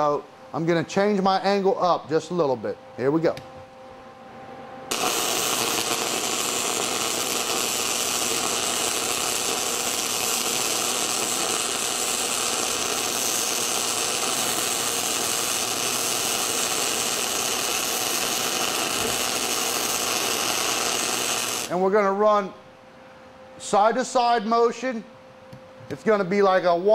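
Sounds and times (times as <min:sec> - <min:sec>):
welding arc burning: 0:04.9 - 0:21.8.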